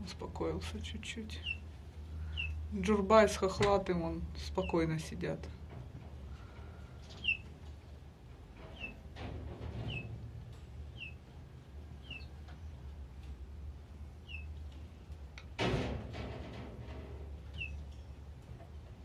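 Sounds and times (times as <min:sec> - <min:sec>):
songbird chirping: 0:01.2 - 0:03.0, 0:06.9 - 0:07.5, 0:08.7 - 0:09.0, 0:09.9 - 0:10.1, 0:10.8 - 0:13.2, 0:14.2 - 0:14.8, 0:17.5 - 0:18.2.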